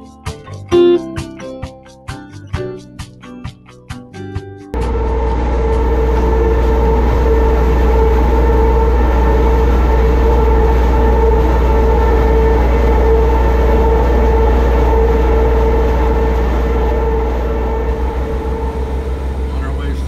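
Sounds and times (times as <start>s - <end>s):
strummed guitar: 0.0s - 18.6s
engine droning: 4.8s - 20.0s.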